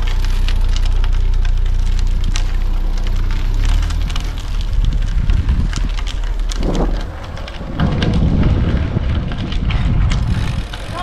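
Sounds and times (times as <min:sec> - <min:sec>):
wind buffeting microphone: 0:02.2 - 0:11.0.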